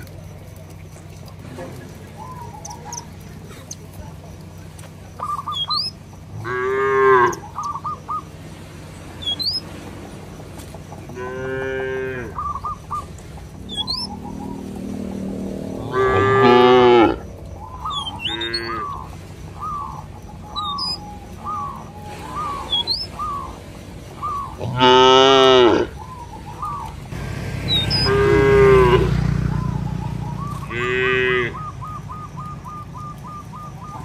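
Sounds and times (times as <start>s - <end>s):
cattle mooing: 6.3s - 7.4s, 11.1s - 12.4s, 13.7s - 17.2s, 18.0s - 19.1s, 24.6s - 26.0s, 27.2s - 29.4s, 30.6s - 31.7s.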